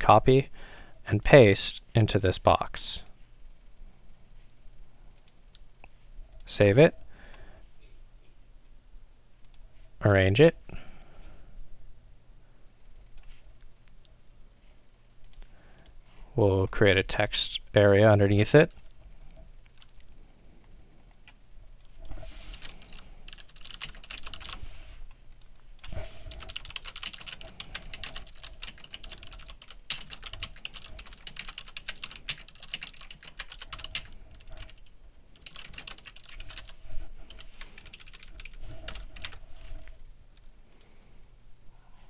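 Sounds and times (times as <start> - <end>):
typing on computer keyboard: 22.5 - 24.6, 25.4 - 39.4.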